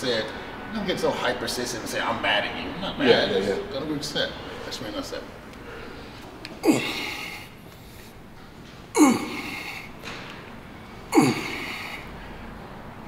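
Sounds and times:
man exhaling forcefully: 11.1 - 12.1.

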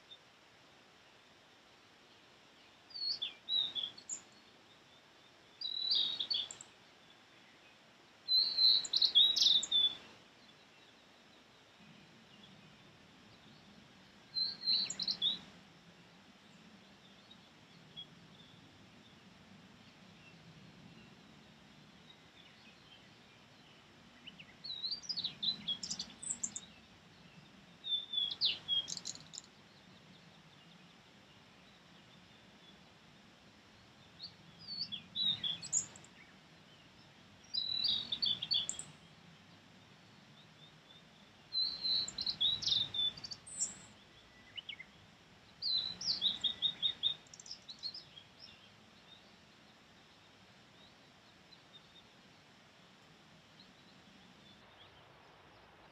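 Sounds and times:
bird singing high phrases: 5.6 - 6.7, 8.3 - 10.1, 14.3 - 15.5, 24.3 - 30.1, 34.2 - 36.3, 37.5 - 39.1, 40.5 - 45.0, 45.6 - 49.3.

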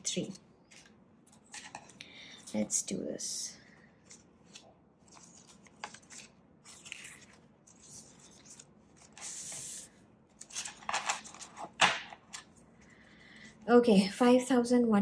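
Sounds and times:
banknotes rustling: 3.7 - 13.4.

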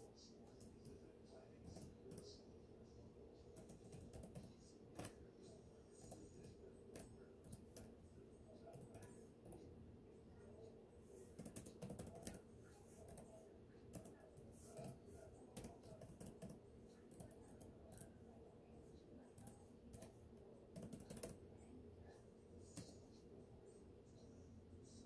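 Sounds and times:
keyboard typing clicks: 3.6 - 5.1, 11.4 - 12.4, 15.6 - 18.1, 20.7 - 21.4.

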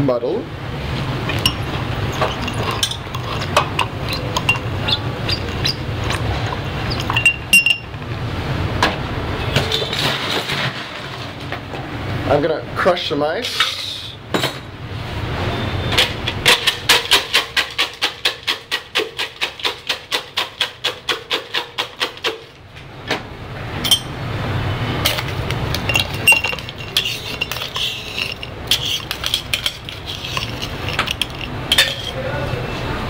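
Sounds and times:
ice crushed in metal shaker: 1.1 - 7.4, 16.6 - 22.4, 25.0 - 32.2
crushed ice rattling into glass: 1.1 - 7.8, 25.0 - 32.2.

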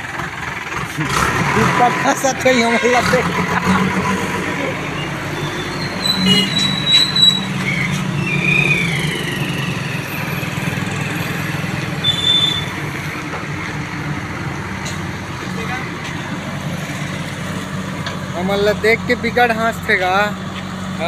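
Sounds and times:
diesel engine running under load: 0.0 - 21.0
high-pitched squeals: 1.9 - 12.9.

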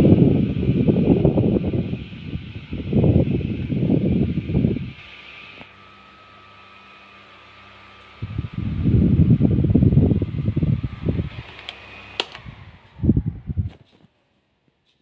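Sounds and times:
airflow buffeting microphone: 0.0 - 5.6, 8.2 - 14.1
electric fan motor hum: 0.0 - 15.0
fan control knob clicks: 11.4 - 12.5.

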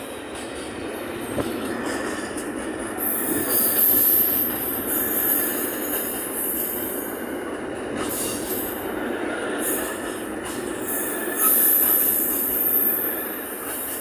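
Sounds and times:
train wagons rumbling on rails: 0.0 - 14.0
high-pitched wheel squeal: 11.4 - 13.4.

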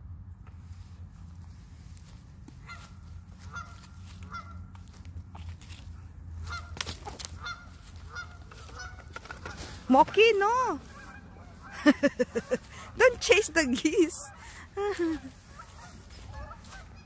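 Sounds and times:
geese honking: 2.6 - 5.0, 6.3 - 17.0.

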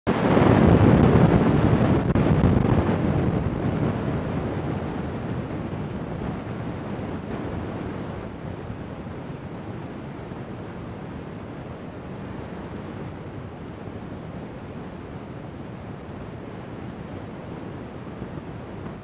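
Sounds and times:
wind buffeting microphone: 0.1 - 19.0.

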